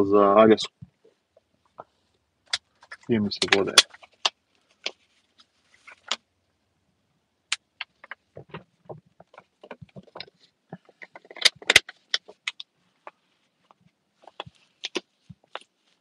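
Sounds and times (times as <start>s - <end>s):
plastic bottle crackling: 7.8s - 13.3s.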